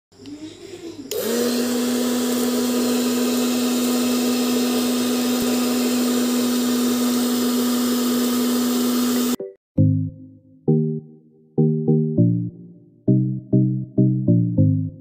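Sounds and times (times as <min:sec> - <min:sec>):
small vacuum motor humming: 0:01.1 - 0:09.4.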